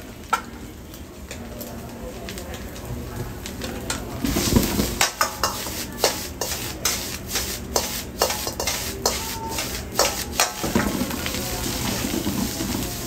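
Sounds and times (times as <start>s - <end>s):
ladle clanking against wok: 3.9s - 13.0s.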